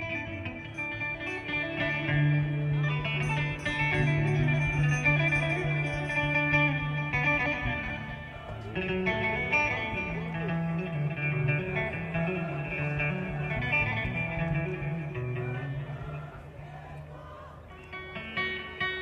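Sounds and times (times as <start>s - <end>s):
plucked string melody: 0.0s - 16.5s.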